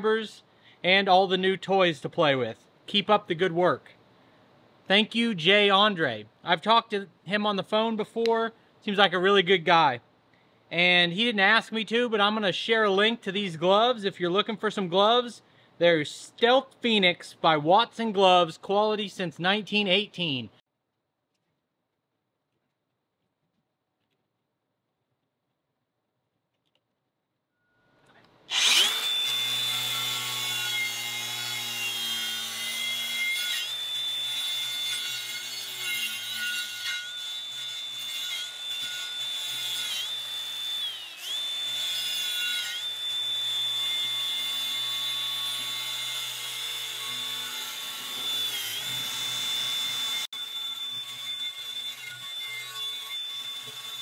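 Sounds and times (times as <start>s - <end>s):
angle grinder whining on metal: 28.5s - 54.0s.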